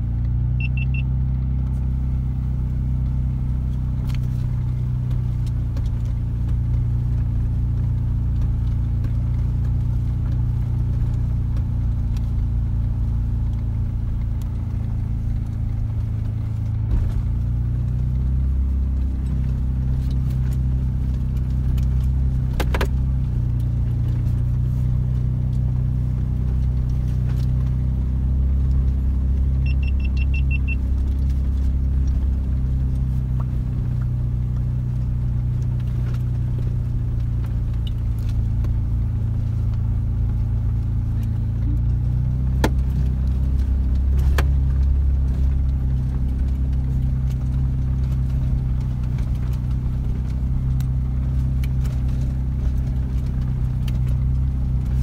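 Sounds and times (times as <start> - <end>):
off-road vehicle engine rumble: 0.0 - 55.0
short electronic beeps: 0.6 - 1.1, 29.6 - 30.8.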